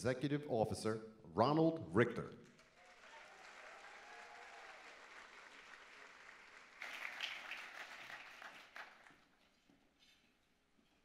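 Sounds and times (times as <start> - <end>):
audience applauding: 2.6 - 9.3.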